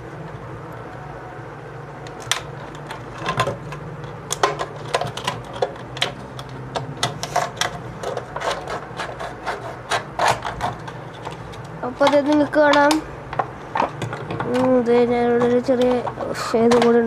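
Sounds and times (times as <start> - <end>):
low steady hum: 0.0 - 17.0
scissors cutting plastic: 2.0 - 17.0.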